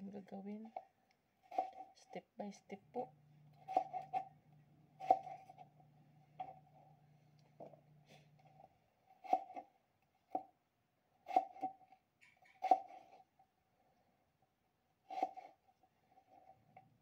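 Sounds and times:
knife slicing onto cutting board: 3.6s - 4.3s, 5.0s - 5.7s, 9.2s - 9.6s, 11.3s - 11.7s, 15.1s - 15.5s.

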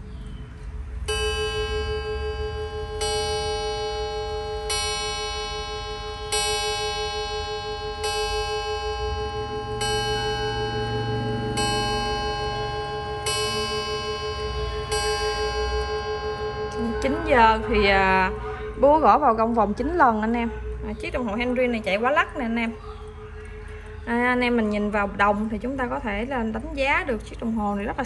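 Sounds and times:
clock gong striking: 1.1s - 23.2s.

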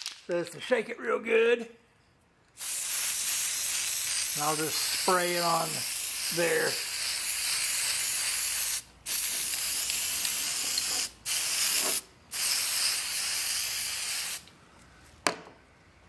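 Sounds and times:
aerosol can spraying: 2.6s - 14.4s.

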